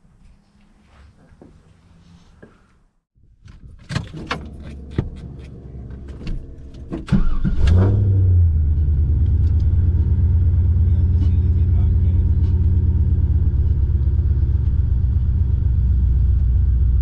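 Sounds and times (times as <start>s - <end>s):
car engine starting and idling: 3.5s - 17.0s.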